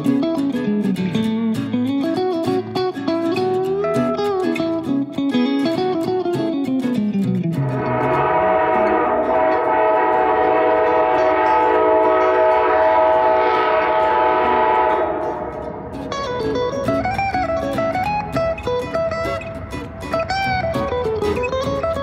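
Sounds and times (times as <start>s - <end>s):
locomotive air horn: 7.7s - 15.9s.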